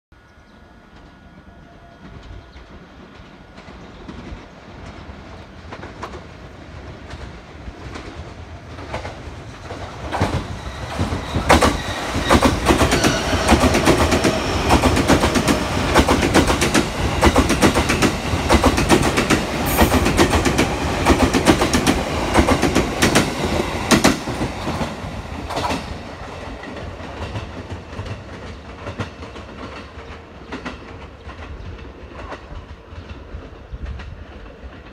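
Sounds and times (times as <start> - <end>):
train passing at speed: 0.2 - 34.9.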